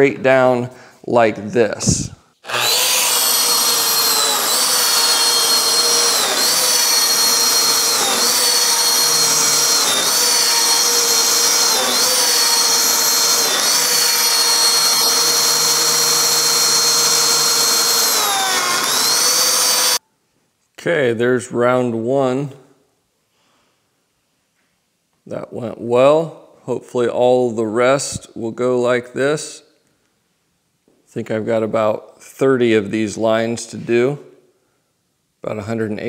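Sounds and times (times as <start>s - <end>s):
joining machine motor whine: 1.9s - 20.0s.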